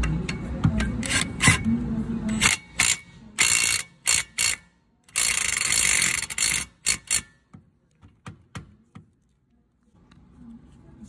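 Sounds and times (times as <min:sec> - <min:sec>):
impact wrench hammering: 0:00.0 - 0:01.7, 0:02.3 - 0:09.1.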